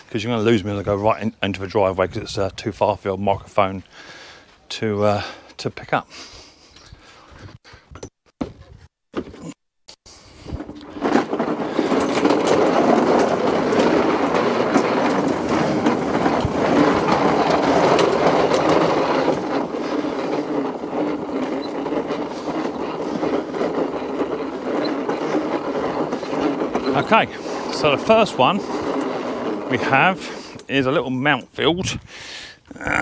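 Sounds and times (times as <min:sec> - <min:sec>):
lawn mower wheels rattling: 0:00.0 - 0:04.4, 0:10.1 - 0:32.1.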